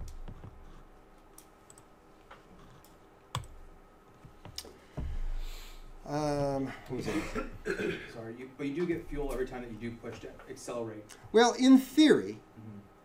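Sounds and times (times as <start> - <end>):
keyboard and mouse clicks: 0.0 - 3.6.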